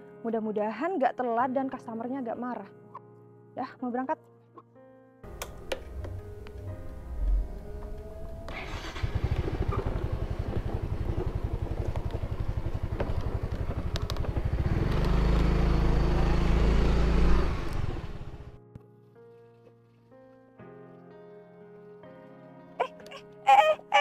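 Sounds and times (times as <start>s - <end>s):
scooter engine starting and running: 5.4s - 18.6s.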